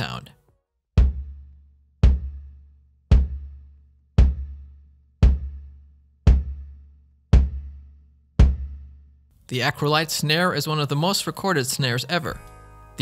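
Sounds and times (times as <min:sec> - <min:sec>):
kick drum hits: 0:01.0 - 0:02.5, 0:03.1 - 0:03.6, 0:04.2 - 0:07.8, 0:08.4 - 0:08.9.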